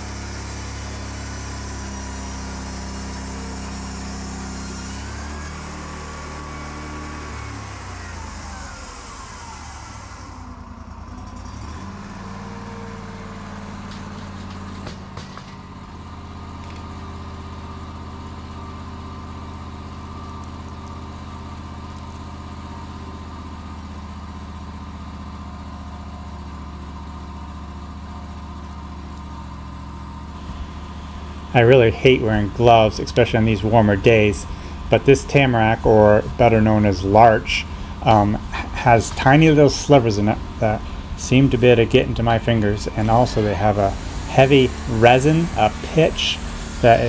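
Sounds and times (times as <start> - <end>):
hiss: 0.0 - 10.5, 42.8 - 47.0
sawmill power unit humming: 0.0 - 47.0.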